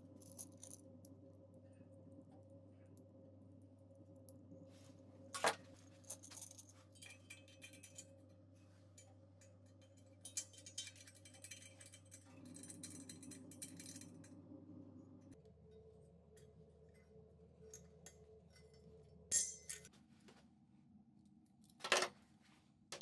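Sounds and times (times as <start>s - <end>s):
faint steady hum: 0.0s - 23.0s
metal regulator clicks and clinks: 9.0s - 14.4s.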